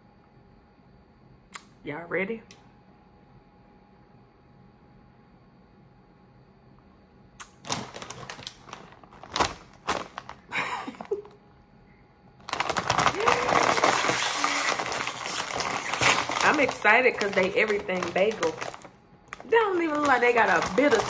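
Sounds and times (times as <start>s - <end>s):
plastic snack bag crinkling: 7.4s - 11.3s, 12.4s - 21.0s.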